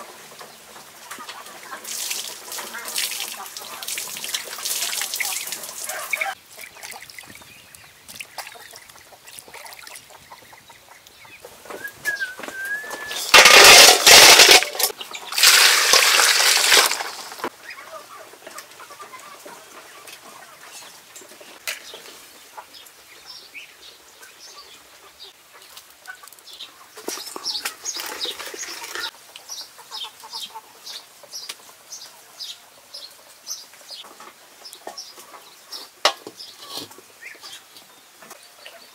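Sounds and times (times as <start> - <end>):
poultry clucking: 0.0 - 13.3, 17.4 - 33.1
water pouring and splashing: 0.8 - 10.2, 12.5 - 17.5, 27.0 - 29.2.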